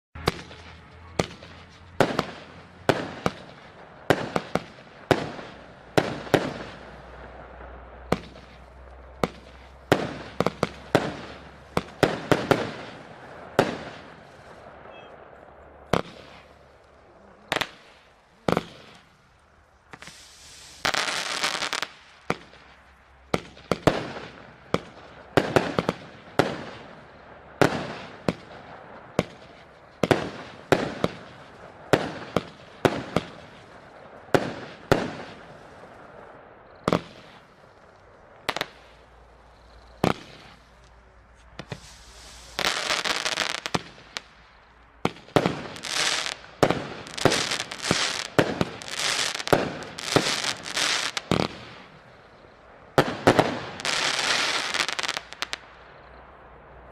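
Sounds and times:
firework bangs: 0.2 - 56.9
firework hissing rush: 15.9 - 28.4, 41.4 - 52.0.

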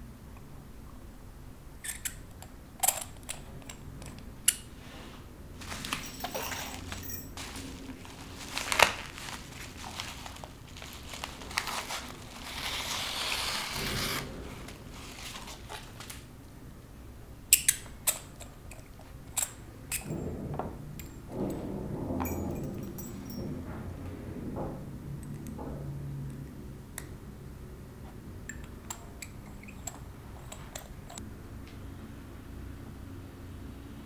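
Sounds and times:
paper rustling: 5.6 - 16.3.

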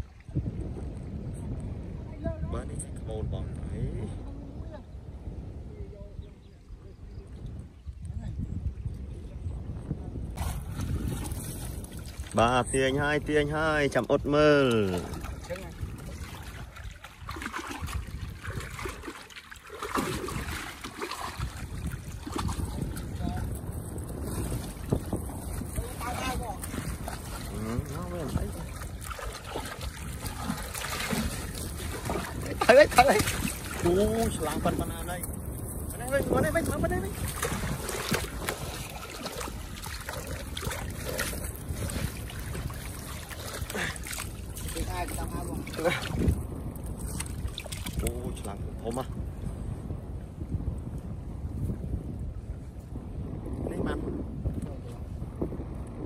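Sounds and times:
water trickling and lapping: 0.0 - 3.1, 4.1 - 53.0
wind rumbling on microphone: 0.0 - 56.0
loud splashing: 14.8 - 23.0, 24.4 - 35.0, 36.0 - 46.3.

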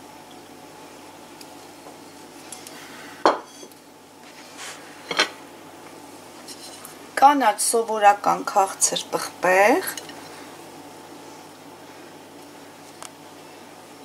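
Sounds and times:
plate knocking against dishes: 3.2 - 3.6.

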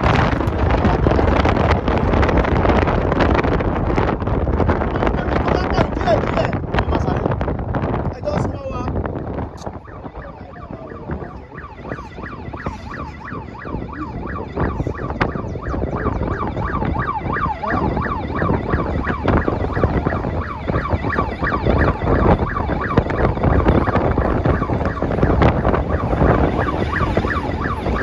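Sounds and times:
wind and road noise: 0.0 - 28.0
siren yelping: 8.3 - 28.0.

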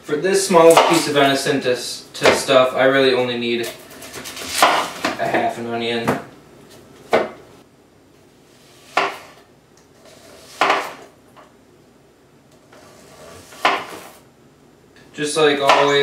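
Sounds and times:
knife slicing onion on board: 4.0 - 5.1, 8.7 - 9.4, 10.1 - 11.0, 12.7 - 14.2.

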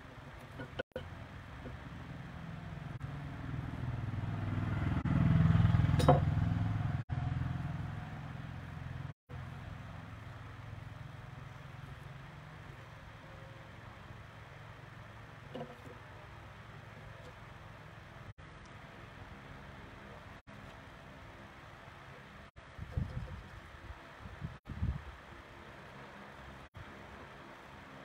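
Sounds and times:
vehicle engine passing by: 2.0 - 9.2.

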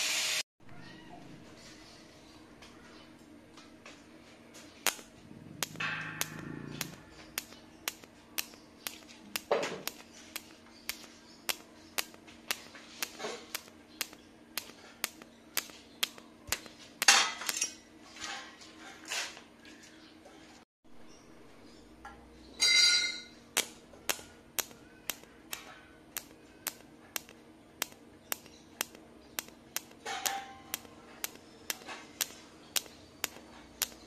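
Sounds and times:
welding arc clicking: 4.8 - 17.7, 23.5 - 34.0.

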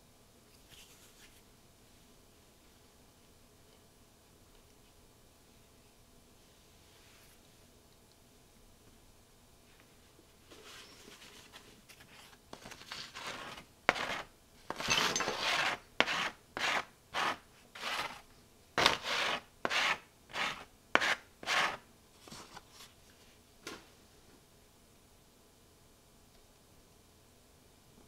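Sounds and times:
foam and paper scraping: 10.6 - 18.2, 18.8 - 22.7.

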